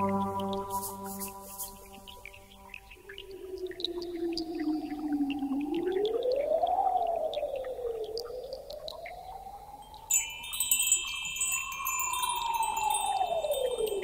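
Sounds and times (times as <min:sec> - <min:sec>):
gliding electronic tone: 0:00.0 - 0:05.1
chime-like tinkling: 0:09.8 - 0:14.0.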